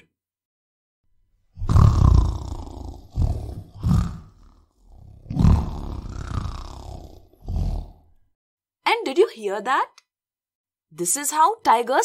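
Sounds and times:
tiger snarling: 0:01.6 - 0:08.2.

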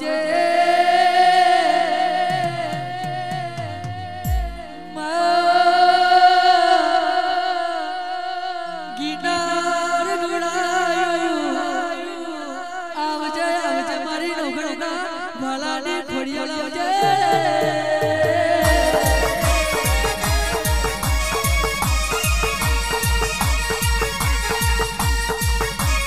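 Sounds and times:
man singing long notes: 0:00.0 - 0:26.0.

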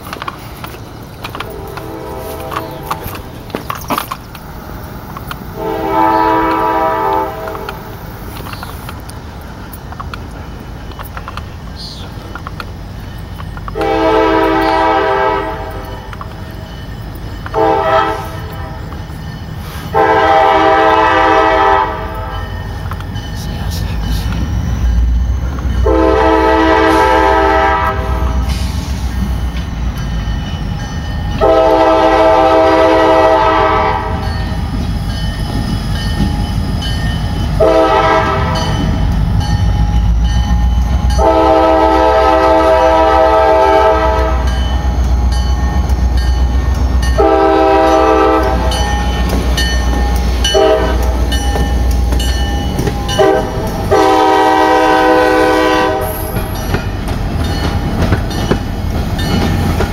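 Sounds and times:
locomotive engine and wheels rumble: 0:00.0 - 0:59.9
wheels clacking over rail joints: 0:00.0 - 0:59.9
train air horn blasts: 0:01.4 - 0:03.3, 0:05.6 - 0:07.8, 0:13.7 - 0:16.1, 0:17.5 - 0:18.9, 0:19.6 - 0:22.4, 0:25.8 - 0:28.9, 0:31.4 - 0:34.3, 0:37.6 - 0:38.8, 0:41.2 - 0:44.6, 0:47.1 - 0:48.8, 0:50.4 - 0:51.4, 0:53.1 - 0:56.4.

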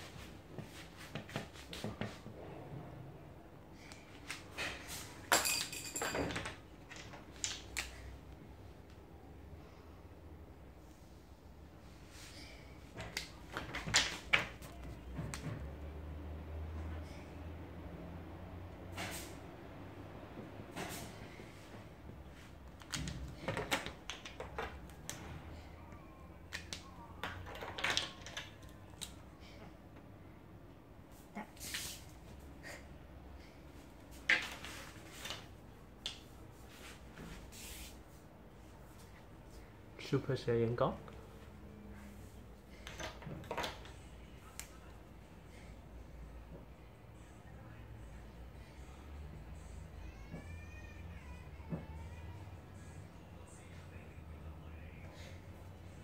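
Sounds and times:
marker caps snapping: 0:26.5 - 0:29.2.

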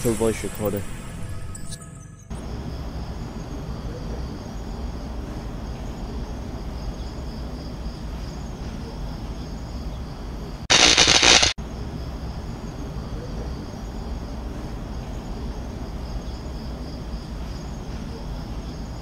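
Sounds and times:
burst of static: 0:10.7 - 0:11.6.

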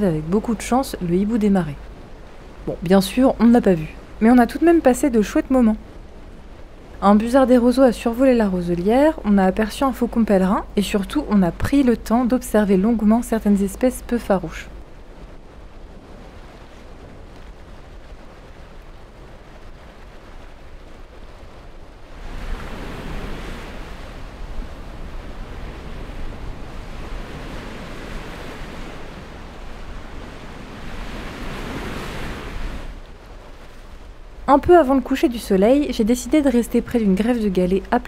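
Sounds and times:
surf breaking on rocky shore: 0:00.1 - 0:38.0
wind noise: 0:12.7 - 0:35.1.

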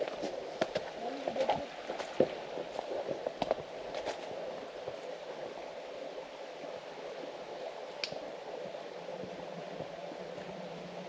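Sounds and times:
flowing water rushing: 0:00.0 - 0:11.0.

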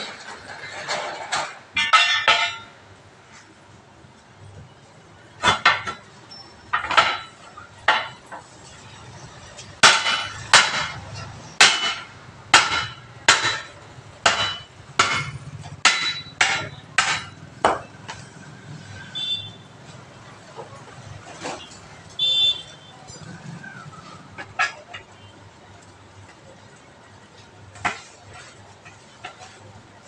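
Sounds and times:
hammer striking steel wheel rim: 0:01.4 - 0:02.7, 0:09.8 - 0:18.2.

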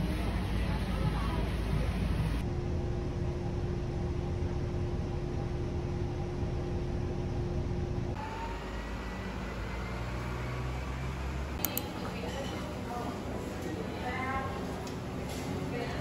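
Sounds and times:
street traffic rumble: 0:00.0 - 0:16.0
bus engine rumble: 0:05.7 - 0:16.0.

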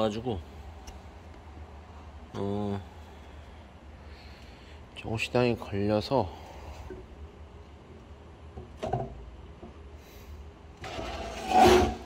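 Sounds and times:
metal frame sliding scrape: 0:10.8 - 0:12.0.

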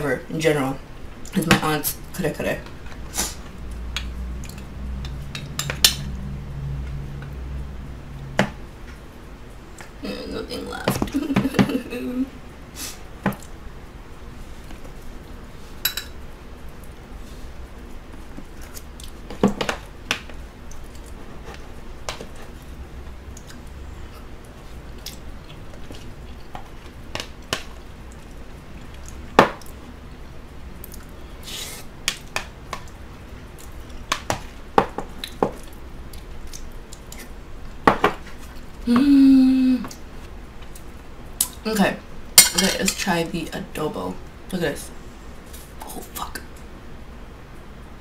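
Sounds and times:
eating and chewing: 0:02.7 - 0:05.6, 0:16.7 - 0:19.9, 0:20.6 - 0:29.9, 0:30.7 - 0:38.8
person humming: 0:10.0 - 0:12.4, 0:38.8 - 0:40.0.

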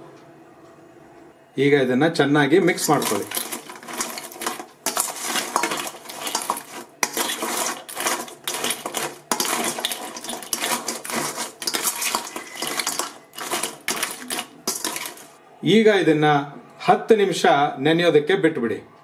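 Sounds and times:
spoon and shells clattering in bowl: 0:02.9 - 0:15.4.

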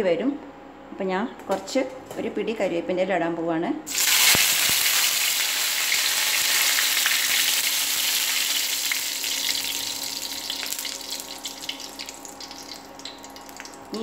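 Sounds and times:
leaves sizzling in hot oil: 0:03.9 - 0:14.0
small crackles and pops: 0:10.5 - 0:14.0.

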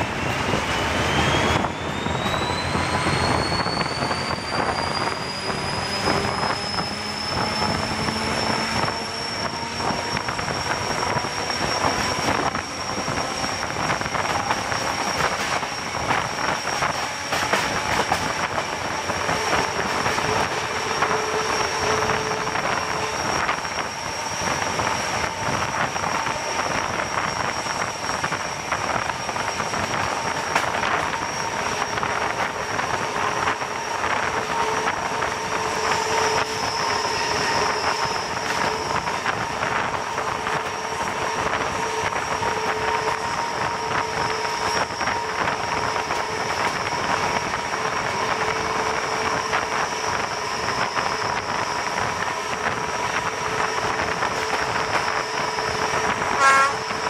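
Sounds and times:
locomotive engine running: 0:00.0 - 0:57.0
steady whining tones: 0:00.0 - 0:57.0
wheel-on-rail noise: 0:00.0 - 0:57.0.

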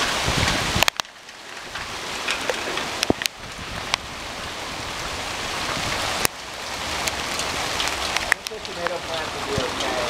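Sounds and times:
sharp hail clicks: 0:00.0 - 0:04.0, 0:07.0 - 0:10.0
hail hissing on paving: 0:00.0 - 0:10.0.

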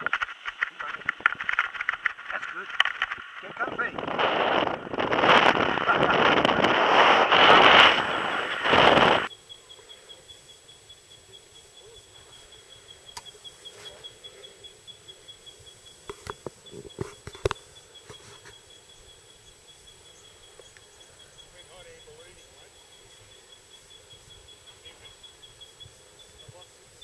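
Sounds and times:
wind rushing over microphone: 0:00.8 - 0:09.3.

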